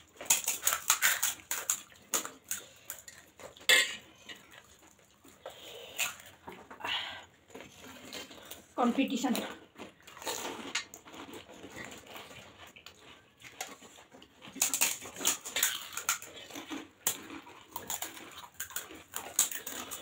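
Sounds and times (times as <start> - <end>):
crisp shells crunching: 0.0 - 5.2, 9.6 - 20.0.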